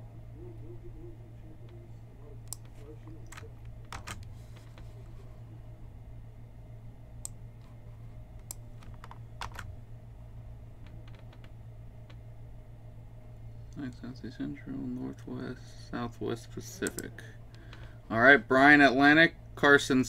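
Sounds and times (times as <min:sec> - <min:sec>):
steady low hum: 0:00.0 - 0:20.0
mouse and keyboard clicks: 0:02.5 - 0:04.3.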